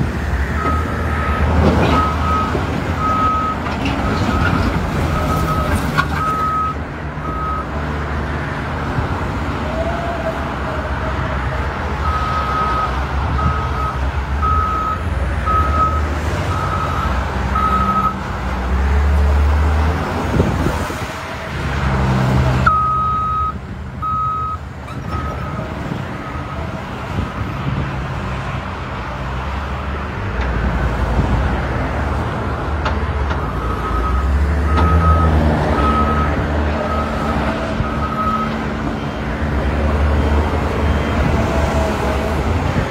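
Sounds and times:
reversing alarm beeping: 0:00.5 - 0:03.6, 0:12.0 - 0:18.2, 0:22.7 - 0:25.6, 0:33.4 - 0:38.6.

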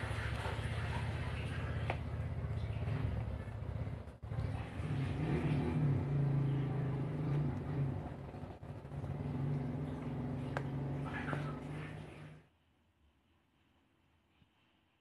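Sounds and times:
low engine hum: 0:00.0 - 0:12.5.

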